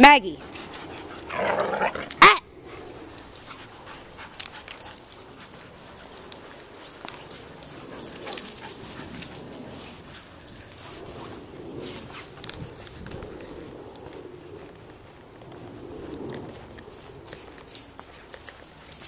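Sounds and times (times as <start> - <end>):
dogs' paws rustling and clicking: 0.0 - 19.0.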